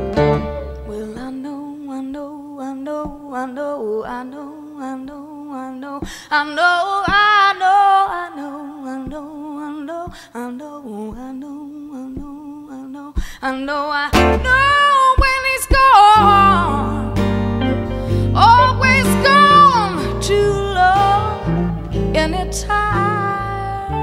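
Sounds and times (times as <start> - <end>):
woman singing unaccompanied: 0.6 - 17.2, 18.3 - 24.0
soft taps: 9.0 - 9.3, 11.1 - 11.4, 12.1 - 12.4.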